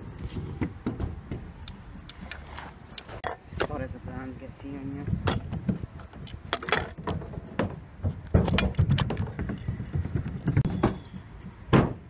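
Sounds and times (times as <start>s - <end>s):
sharp clicks and knocks: 5.2s - 12.0s.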